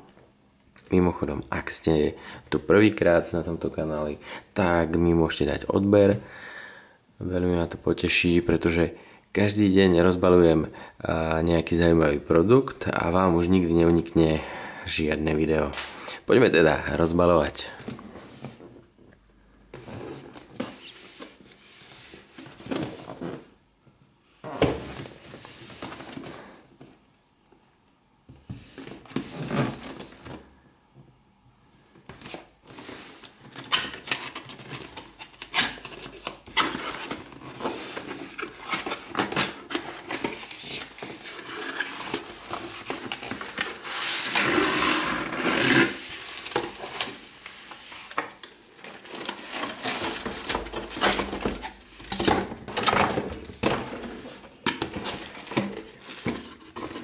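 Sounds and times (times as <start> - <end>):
cardboard rustling and scraping: 19.7 - 23.6, 24.5 - 26.8, 28.4 - 30.5, 32.1 - 57.0.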